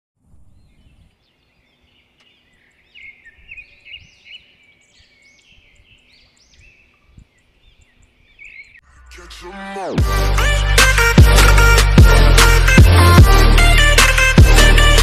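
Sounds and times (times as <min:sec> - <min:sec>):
small birds chirping: 0:00.2 - 0:09.4.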